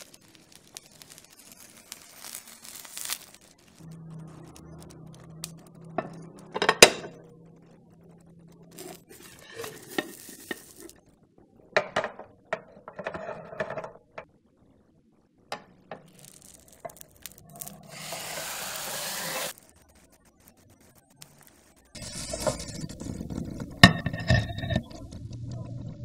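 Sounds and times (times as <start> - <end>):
omelette sizzling in pan: 0.0 - 7.0, 8.6 - 11.1, 15.8 - 26.0.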